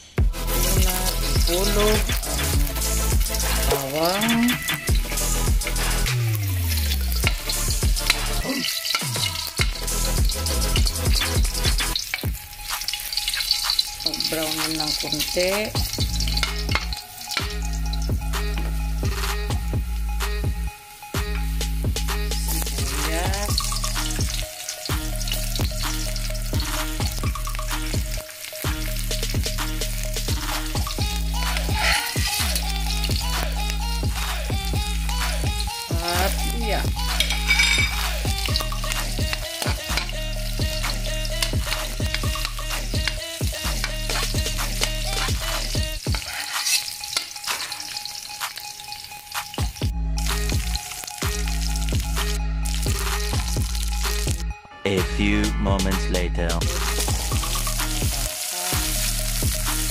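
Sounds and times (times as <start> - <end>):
onions sizzling in hot oil: 0.0 - 54.4, 56.6 - 59.9
background music with bass and beat: 0.1 - 13.0, 14.6 - 46.4, 49.4 - 59.9
spatula stirring in wok: 6.8 - 11.0, 11.6 - 17.3, 37.1 - 49.5.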